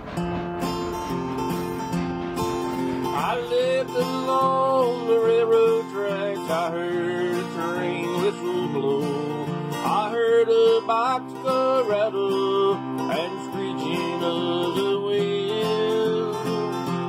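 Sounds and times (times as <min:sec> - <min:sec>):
sliding lead melody: 0:00.0 - 0:13.1
acoustic guitar chords: 0:00.0 - 0:17.0.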